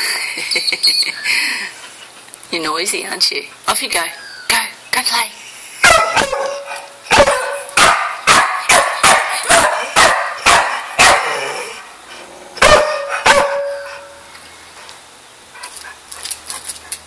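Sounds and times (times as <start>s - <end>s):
dog barking: 5.8s - 11.5s, 12.6s - 14.2s.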